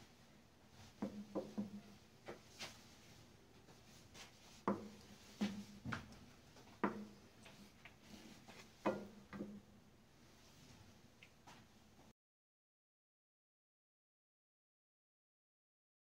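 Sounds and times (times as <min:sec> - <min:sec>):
wooden spatula knocking metal pot: 0:04.7 - 0:06.1, 0:06.8 - 0:07.2, 0:08.8 - 0:09.6.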